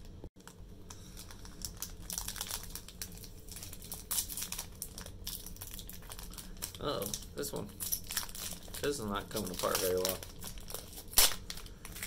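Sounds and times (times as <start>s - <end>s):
foil wrapper crinkling: 0.4s - 12.0s.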